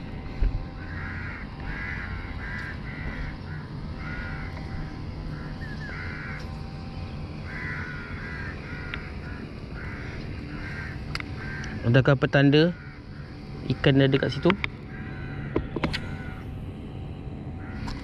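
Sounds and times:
steady low rumble: 0:00.0 - 0:18.0
bird calling: 0:00.7 - 0:16.5, 0:17.6 - 0:18.0.

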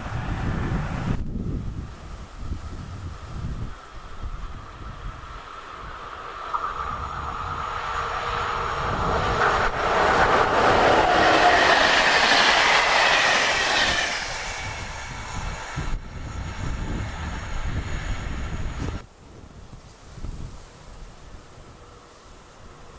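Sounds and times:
train passing: 0:00.0 - 0:19.1, 0:20.3 - 0:22.9
wheels on rails: 0:03.4 - 0:19.0
high whine dropping in pitch: 0:04.9 - 0:19.0.

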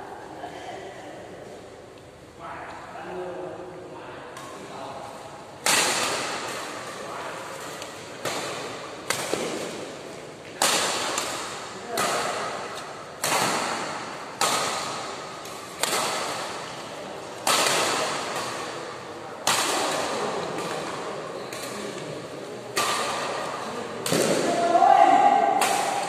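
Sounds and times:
badminton rackets hitting shuttlecock: 0:05.6 - 0:07.0, 0:07.6 - 0:22.0, 0:22.7 - 0:26.0.

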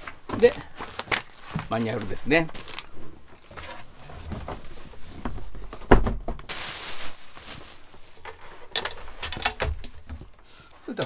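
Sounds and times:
plastic wrapping rustling: 0:00.0 - 0:10.4.

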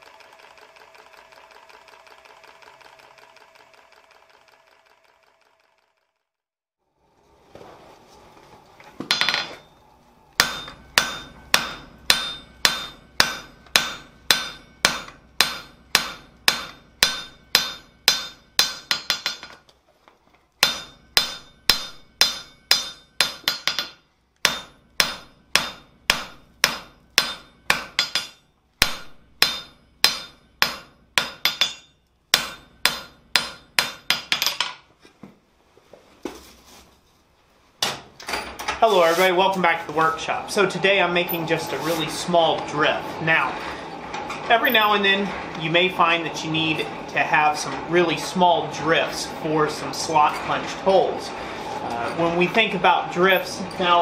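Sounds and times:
hammer ringing on anvil: 0:09.1 - 0:09.8, 0:10.4 - 0:19.5, 0:20.6 - 0:34.6.

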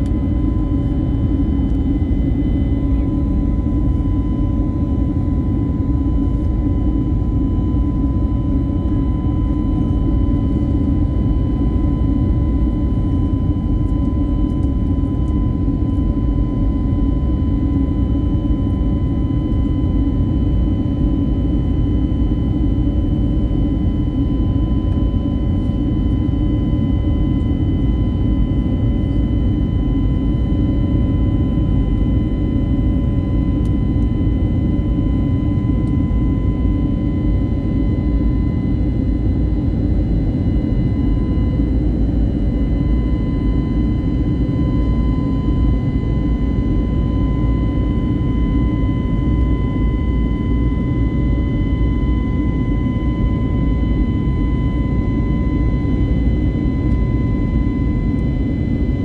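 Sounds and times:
high engine whine: 0:00.0 - 0:59.0.

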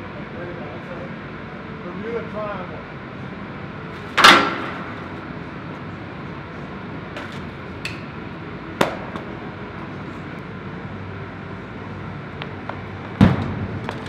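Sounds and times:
steady room hum: 0:00.0 - 0:14.0.

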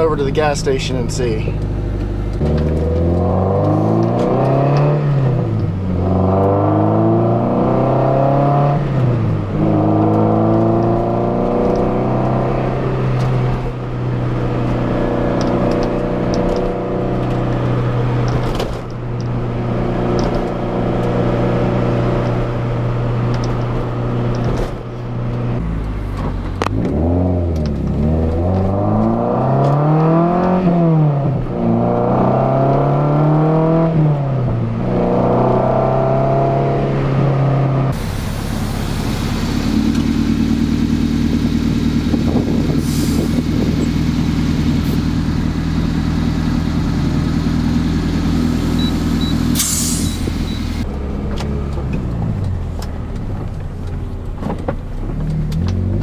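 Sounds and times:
car engine from inside cabin: 0:00.0 - 0:56.0.

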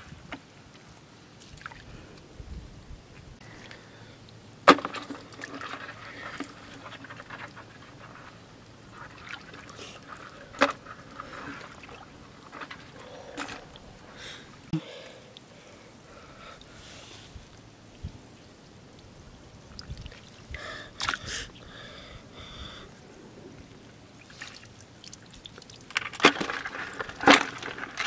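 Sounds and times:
water sloshing around wading feet: 0:01.3 - 0:01.9, 0:04.6 - 0:14.6, 0:23.7 - 0:28.0.

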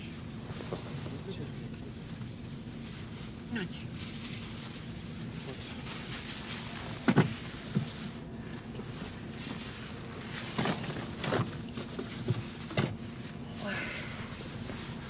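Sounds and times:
low hum inside coach: 0:00.0 - 0:15.0
soft knocks of luggage: 0:06.9 - 0:08.0, 0:10.5 - 0:13.0.

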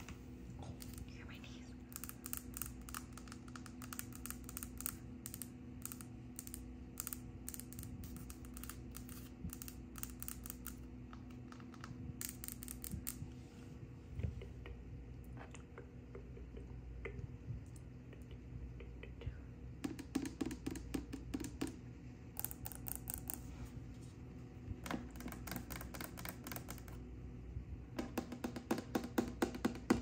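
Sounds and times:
fingernails tapping on wood: 0:19.8 - 0:21.8, 0:24.8 - 0:27.0, 0:28.0 - 0:30.0.

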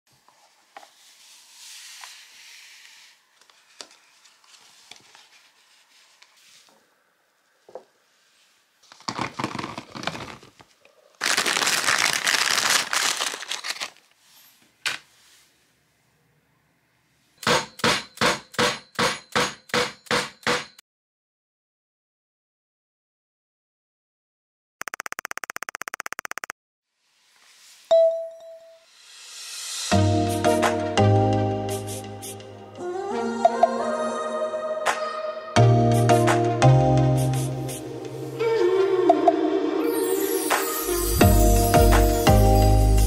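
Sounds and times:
crinkling rushing noise: 0:11.2 - 0:14.0.

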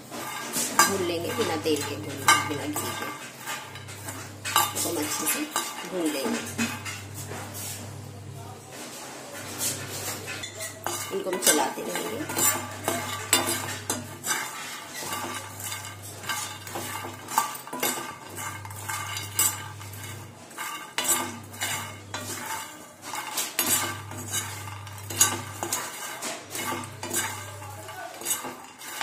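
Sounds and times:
metal spoon scraping pan: 0:00.0 - 0:07.8, 0:09.4 - 0:29.0.

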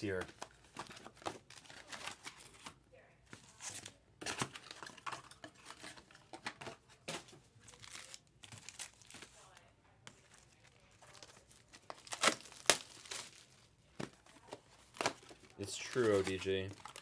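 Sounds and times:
wrappers crinkling and tearing: 0:00.2 - 0:02.7, 0:07.6 - 0:17.0.

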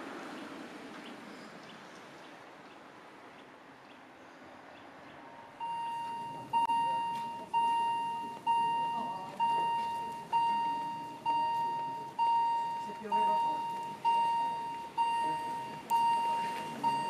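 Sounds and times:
level crossing warning bell: 0:05.3 - 0:17.0.

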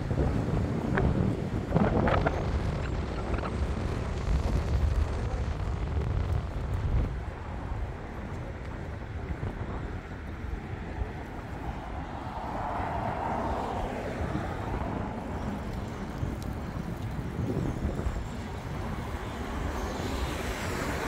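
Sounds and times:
traffic ambience: 0:00.0 - 0:21.0
wind rumble on microphone: 0:00.0 - 0:21.0
vehicle passing: 0:10.2 - 0:17.7.

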